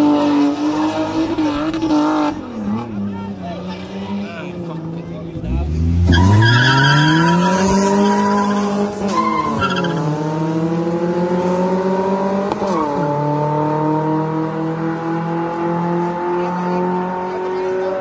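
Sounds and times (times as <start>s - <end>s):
drag car engines at full throttle: 0.0s - 18.0s
tyres squealing: 6.1s - 10.0s.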